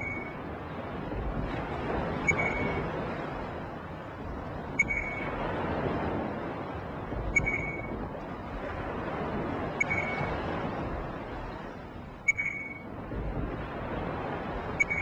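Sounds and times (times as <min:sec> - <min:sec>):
steady rushing noise: 0:00.0 - 0:15.0
short high electronic beep: 0:04.8 - 0:05.2, 0:07.4 - 0:07.9, 0:12.3 - 0:12.8.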